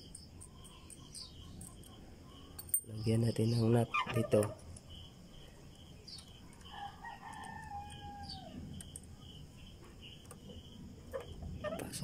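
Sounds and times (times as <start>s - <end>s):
faint rooster crowing: 6.6s - 8.8s.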